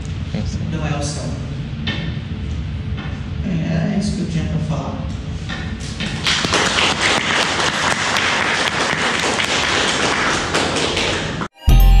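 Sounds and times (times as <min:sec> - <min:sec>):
audience applauding: 0:06.2 - 0:11.5.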